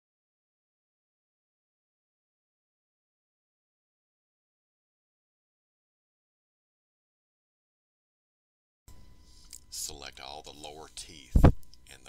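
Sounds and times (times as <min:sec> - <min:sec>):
faint steady hiss: 0:08.9 - 0:12.0.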